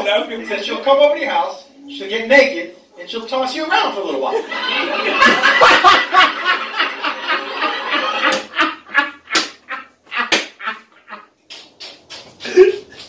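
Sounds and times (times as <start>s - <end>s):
audience laughing: 4.3s - 11.3s.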